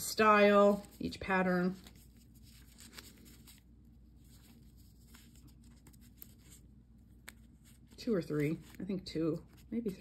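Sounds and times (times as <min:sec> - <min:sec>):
paper stickers rustling: 0:00.2 - 0:10.0.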